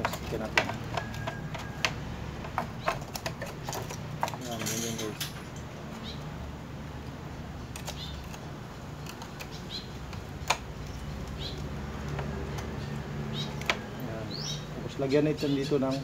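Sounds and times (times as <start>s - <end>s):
bird chirps: 12.8s - 16.0s.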